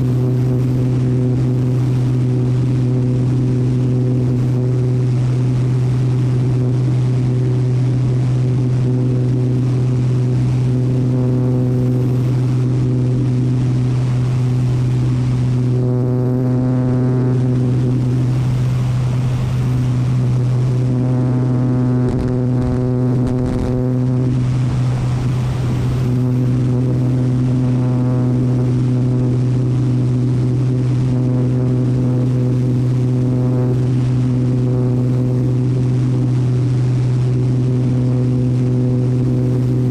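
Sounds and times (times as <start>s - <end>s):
aircraft engine and propeller drone: 0.0s - 39.9s
rushing air: 22.0s - 29.7s.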